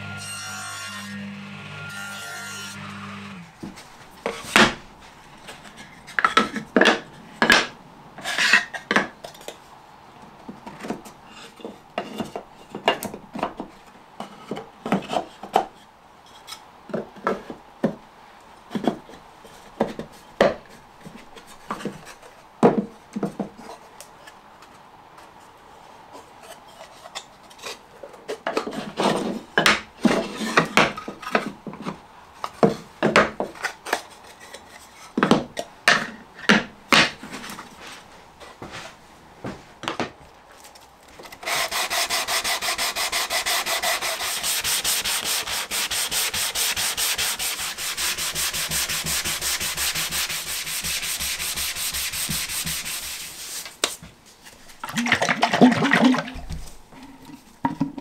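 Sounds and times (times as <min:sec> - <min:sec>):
wooden panels rubbing: 0:41.2 - 0:54.8.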